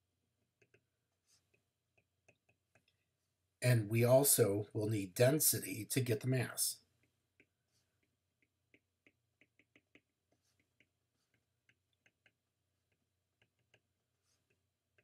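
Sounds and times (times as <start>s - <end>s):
stylus tapping glass screen: 0.5s - 3.0s, 6.9s - 15.0s.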